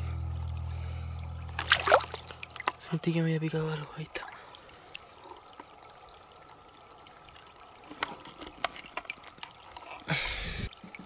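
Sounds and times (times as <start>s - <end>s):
stream water trickling: 0.0s - 11.0s
hand splashing in water: 1.6s - 2.8s.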